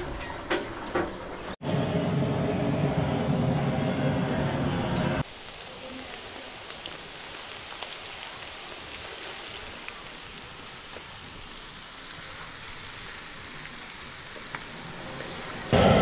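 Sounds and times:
food deep-frying in oil: 5.2s - 15.8s.

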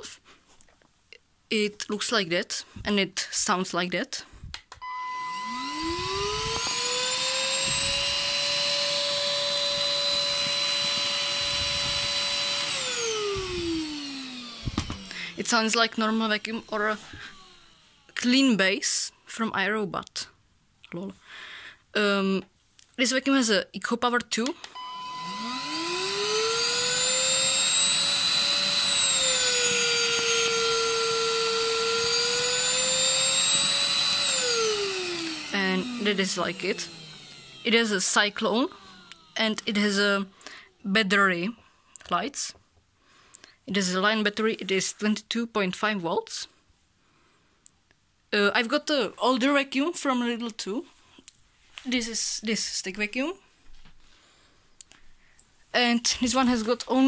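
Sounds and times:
vacuum motor whine: 4.8s - 18.2s, 24.6s - 40.0s.

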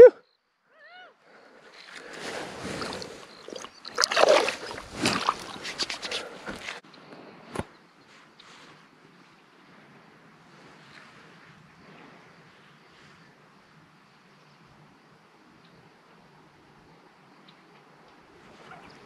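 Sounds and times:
water splashing and sloshing: 1.7s - 6.8s.

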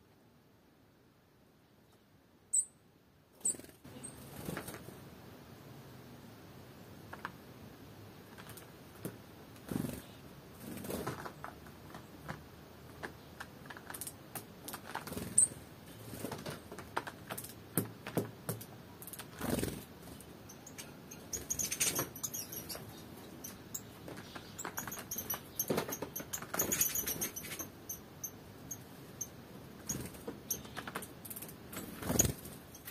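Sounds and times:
birds pecking and scratching at seeds: 8.2s - 32.9s.

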